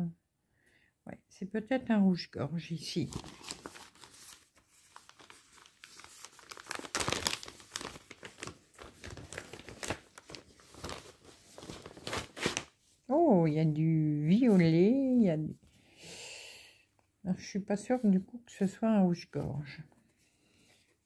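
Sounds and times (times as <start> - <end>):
plastic sleeve crinkling: 3.0 - 12.9.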